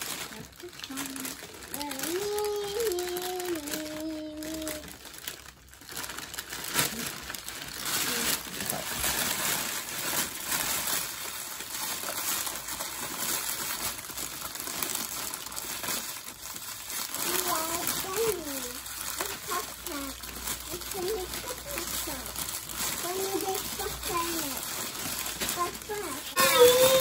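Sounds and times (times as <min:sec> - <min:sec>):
cellophane crinkling: 0:00.0 - 0:27.0.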